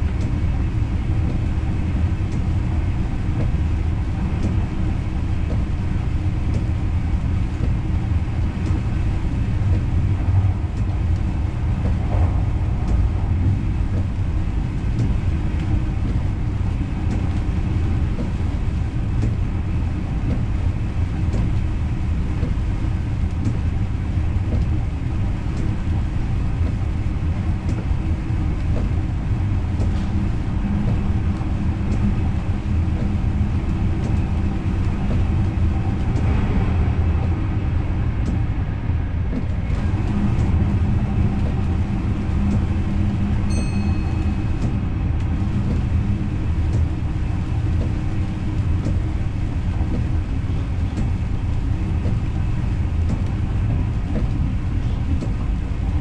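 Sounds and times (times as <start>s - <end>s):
train rumbling on rails: 0.0s - 56.0s
brief high tone: 43.5s - 44.6s.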